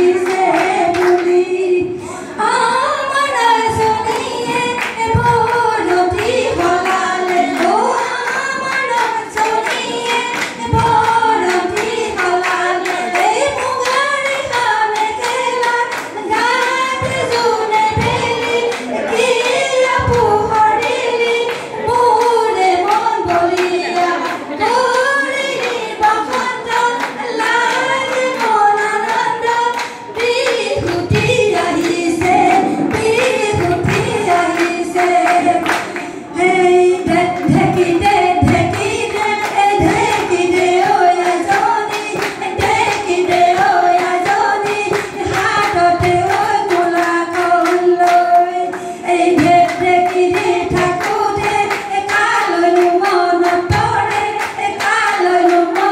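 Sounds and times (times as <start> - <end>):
rhythmic hand clapping: 0.0 - 55.9
women singing: 0.0 - 55.9.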